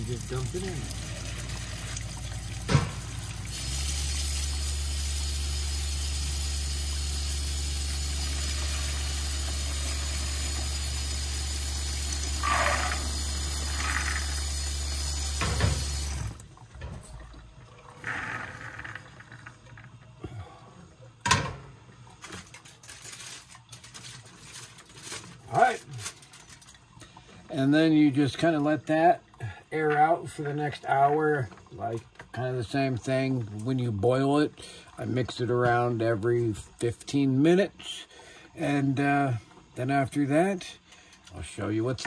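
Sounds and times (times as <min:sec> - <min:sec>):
tap running into metal sink: 0:15.2 - 0:17.2.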